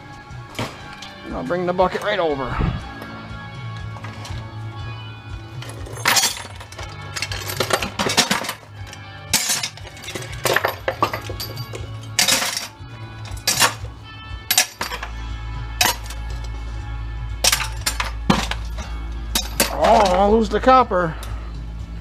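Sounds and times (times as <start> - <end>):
background music: 0.0 - 22.0
metal scrap clattering into bucket: 5.6 - 13.9, 14.5 - 15.2, 15.8 - 16.5, 17.4 - 20.3.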